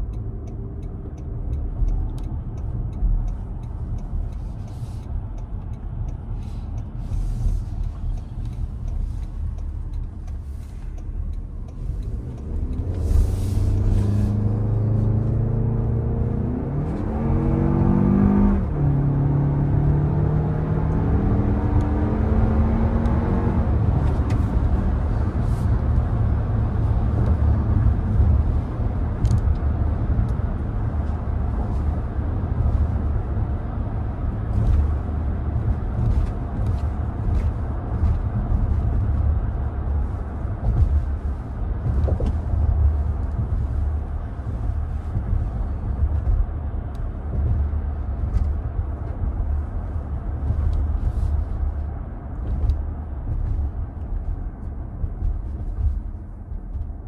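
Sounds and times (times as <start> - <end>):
faint ticks: 0.0 - 12.9
road and tyre rumble: 0.0 - 57.0.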